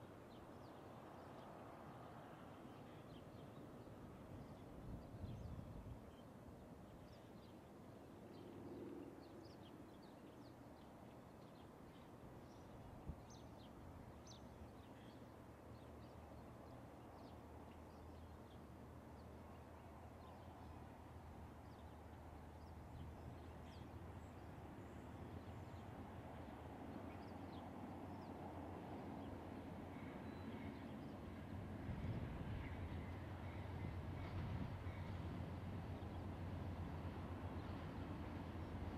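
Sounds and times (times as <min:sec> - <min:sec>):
distant locomotive rumble: 0:13.7 - 0:38.9.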